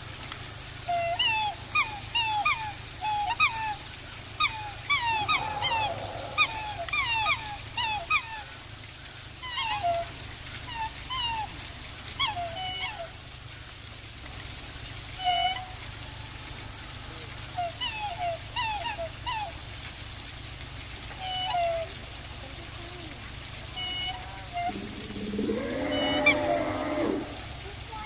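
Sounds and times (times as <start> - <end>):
swans bugling calls: 4.4 - 8.3, 23.7 - 27.6.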